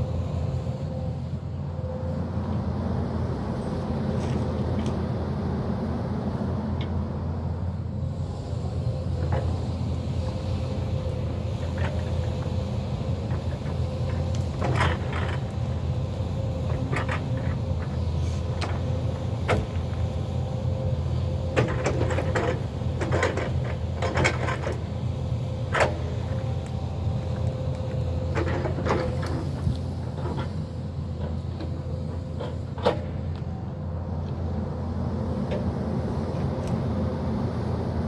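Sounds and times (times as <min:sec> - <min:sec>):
excavator diesel engine running: 0:00.0 - 0:38.0.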